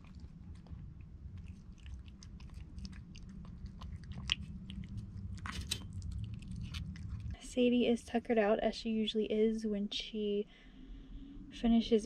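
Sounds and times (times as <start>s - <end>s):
cat chewing wet food: 0.0s - 7.4s
low steady hum: 0.0s - 12.0s.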